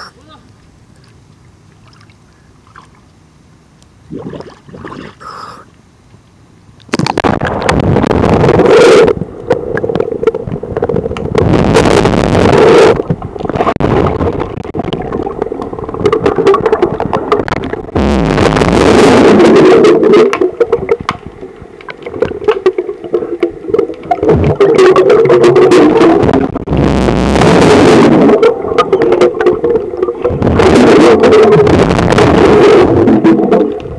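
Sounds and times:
muffled underwater sloshing: 0:06.9 - 0:33.9.

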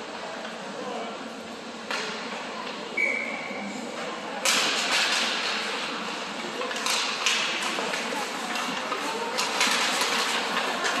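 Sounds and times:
spectators chatter: 0:00.0 - 0:11.0
skates scraping on ice: 0:06.7 - 0:11.0.

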